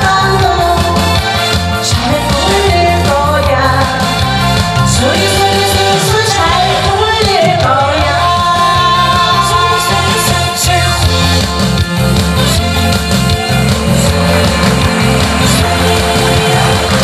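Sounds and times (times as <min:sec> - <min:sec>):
woman singing pop song: 0:00.0 - 0:12.5, 0:13.2 - 0:17.0
instrumental accompaniment with beat: 0:00.0 - 0:17.0.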